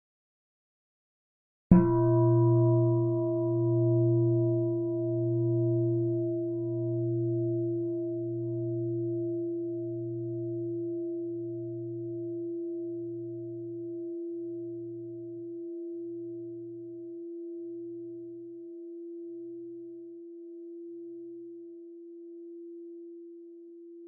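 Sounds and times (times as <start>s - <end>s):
bowl bell ringing: 1.7s - 21.5s.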